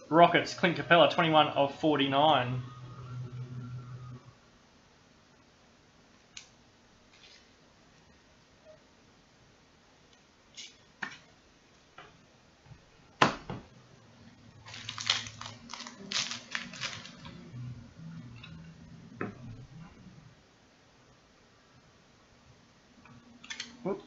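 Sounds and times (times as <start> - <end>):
crackly plastic rustling: 7.1 - 7.6, 14.5 - 17.4.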